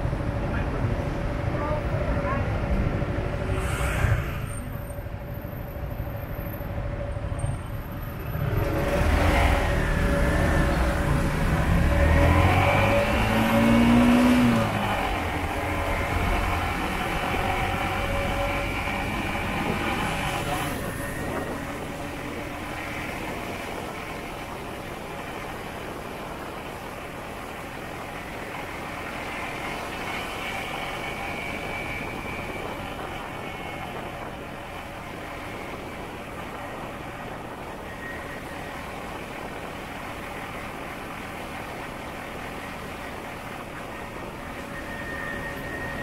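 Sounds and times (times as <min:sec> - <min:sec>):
motorbike engine and road noise: 0:00.0 - 0:46.0.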